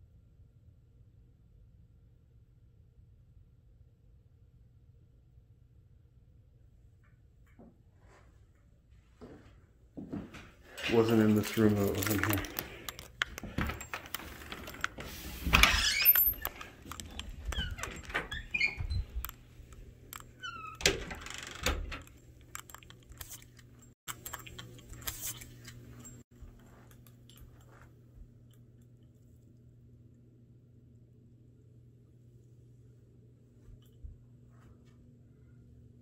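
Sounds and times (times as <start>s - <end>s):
faint low hum: 0.0s - 36.0s
door clicks and rattles: 12.0s - 22.2s.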